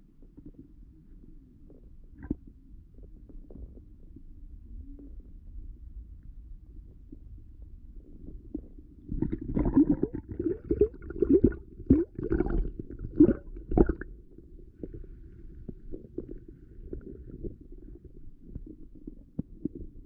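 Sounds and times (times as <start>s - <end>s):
muffled water sloshing underwater: 0.0s - 20.0s
burbling water splashes: 9.1s - 14.1s.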